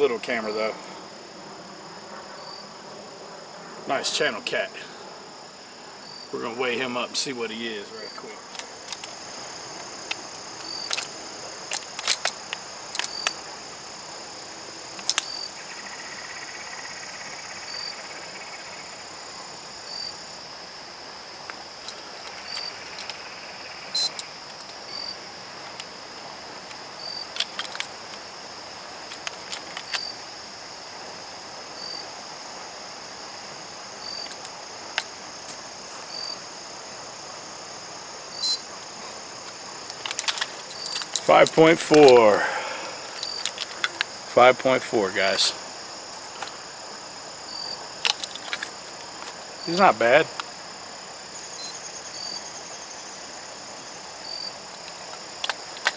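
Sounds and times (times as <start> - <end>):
high insect chorus: 0.0 - 55.9
short insect chirp: 0.0 - 55.9
clicks and clatter of handling: 8.4 - 9.2, 10.0 - 13.4, 15.0 - 15.3, 21.5 - 23.2, 26.7 - 28.2, 29.0 - 30.1, 39.4 - 41.3, 43.1 - 44.1, 48.0 - 49.4, 54.8 - 55.9.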